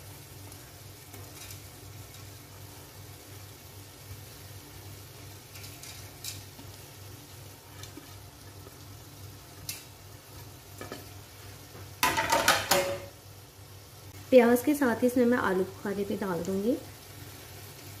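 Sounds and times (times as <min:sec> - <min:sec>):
fried onions rustling: 0:00.0 - 0:12.6
utensil clattering against pot: 0:12.0 - 0:13.1.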